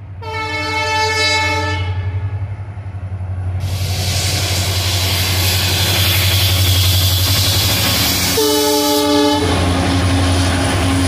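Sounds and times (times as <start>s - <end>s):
train rumble: 0.0s - 11.0s
locomotive horn: 0.2s - 2.2s, 8.3s - 9.7s.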